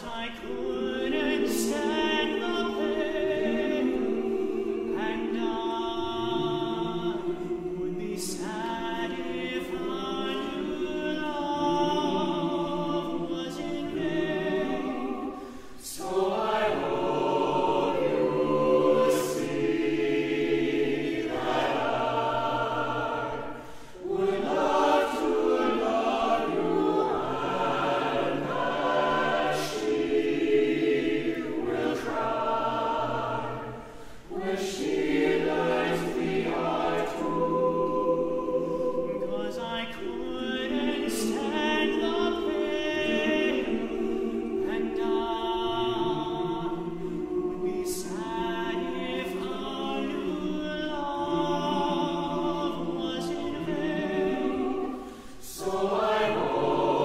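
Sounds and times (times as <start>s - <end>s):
choir singing a cappella: 0.0s - 57.0s
singers breathing: 15.3s - 15.8s, 23.5s - 24.1s, 33.7s - 34.3s, 54.9s - 55.4s.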